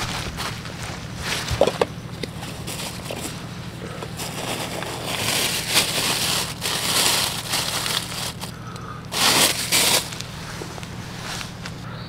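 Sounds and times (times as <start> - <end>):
plastic crinkling: 0.0 - 3.4, 4.0 - 11.7
fabric rustling: 4.2 - 8.5, 9.2 - 11.8.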